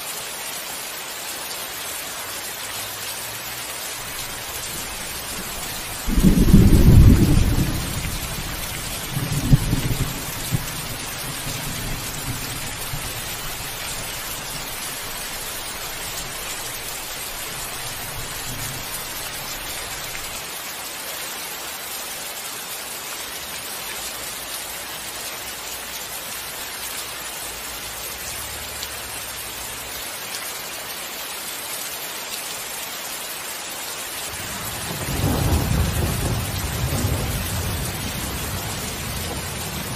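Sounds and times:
steady rain: 0.0 - 39.9
thunder crack and rumble: 4.6 - 13.7, 34.6 - 39.9
thunder clap: 4.8 - 13.1.

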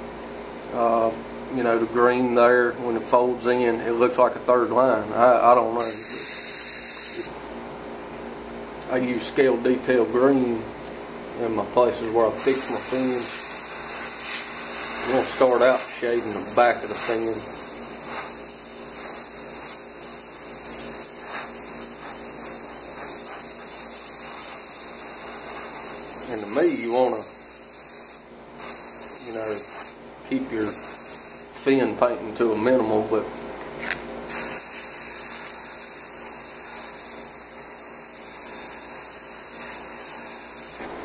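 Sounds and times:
airbrush spraying hiss: 12.4 - 30.0, 30.6 - 31.5, 34.3 - 40.8.

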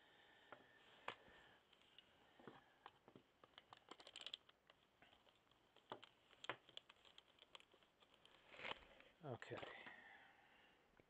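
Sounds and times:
small parts clicking: 2.8 - 8.8.

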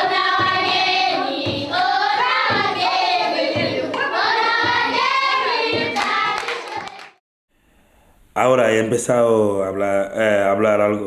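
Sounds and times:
group singing in chorus: 0.0 - 7.0
steady clapping: 1.6 - 7.2.

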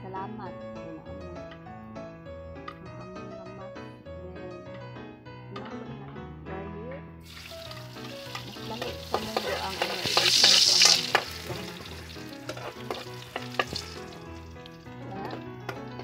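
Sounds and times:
oil sizzling in frying pan: 7.2 - 14.9
utensil scraping pan: 8.2 - 14.2.

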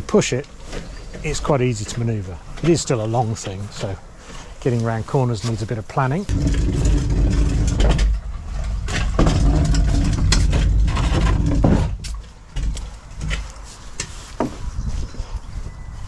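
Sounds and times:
kayak wheel rumbling on pavement: 0.0 - 13.7
kayak knocks and scrapes: 6.3 - 14.7.

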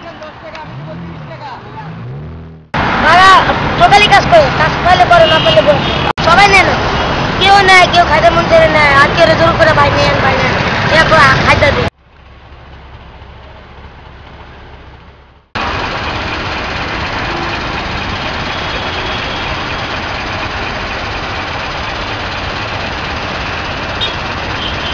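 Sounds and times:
traffic noise: 0.0 - 24.9.

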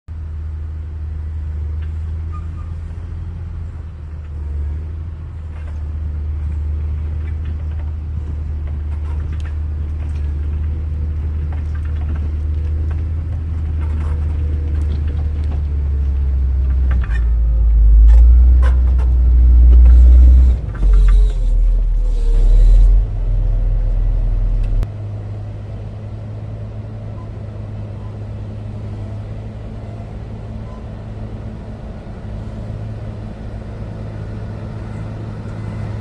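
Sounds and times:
diesel engine drone: 0.1 - 36.0
blade grinding through stony soil: 13.6 - 23.7.

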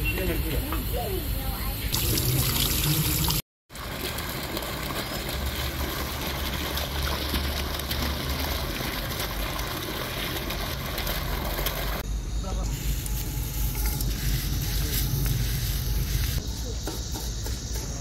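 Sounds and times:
fountain jet splashing into pool: 2.0 - 12.0
tap water splashing into basin: 3.8 - 12.0.

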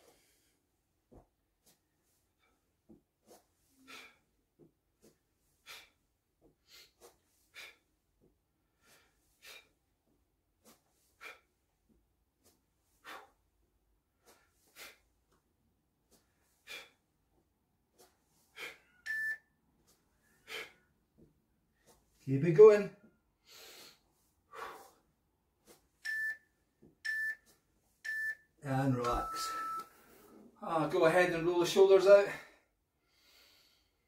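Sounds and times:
short beep: 19.1 - 19.4, 26.1 - 26.4, 27.1 - 27.4, 28.1 - 30.0.

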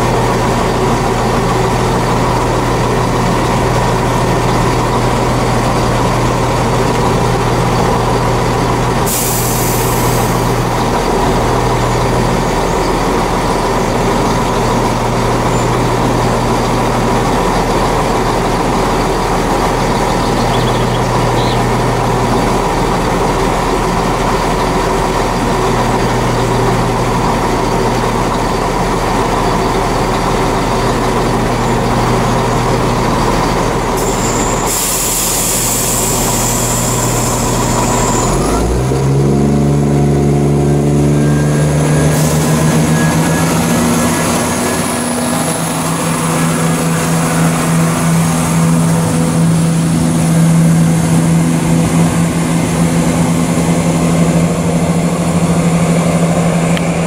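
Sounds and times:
diesel train engine idling: 0.0 - 57.0
hiss of air: 9.1 - 10.8, 34.0 - 38.1.

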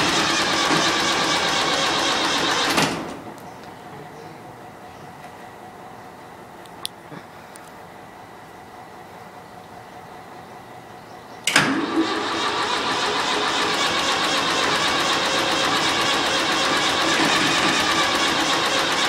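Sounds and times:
diesel engine starting and running: 0.0 - 6.0, 11.4 - 19.0.

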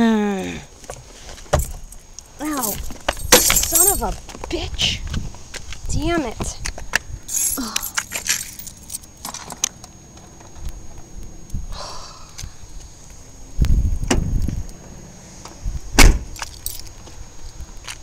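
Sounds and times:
small clinks: 1.6 - 4.2, 7.3 - 9.7, 16.4 - 16.9
car door shutting: 14.0 - 14.4, 16.0 - 16.4.

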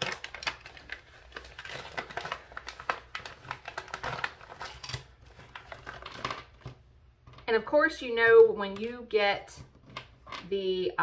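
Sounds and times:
packaging crinkling and rustling: 0.0 - 7.4.

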